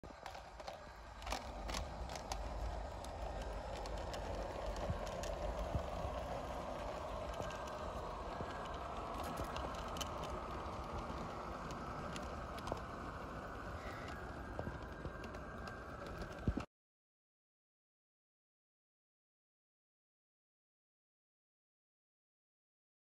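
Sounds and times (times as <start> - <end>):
model locomotive motor and gears: 0.0 - 16.7
wheels clicking over rail: 0.1 - 16.6.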